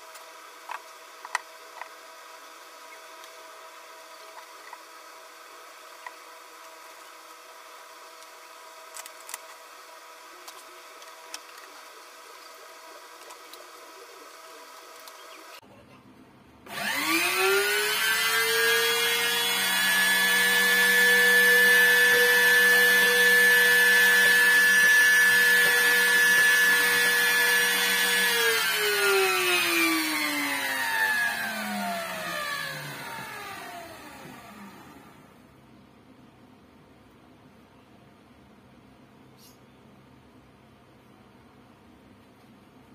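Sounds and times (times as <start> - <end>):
electric motor whining: 16.7 - 35.4.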